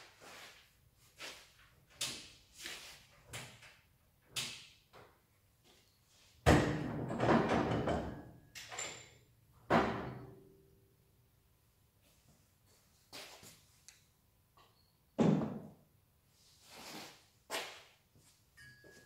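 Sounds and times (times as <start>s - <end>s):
metal clunks and rattles: 6.5s - 8.9s.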